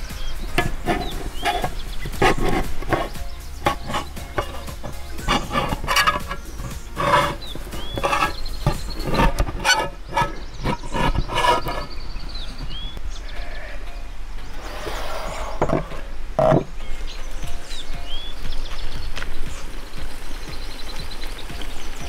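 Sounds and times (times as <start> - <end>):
birds chirping: 0.0 - 22.0
knife cutting tin can lid: 0.5 - 11.9.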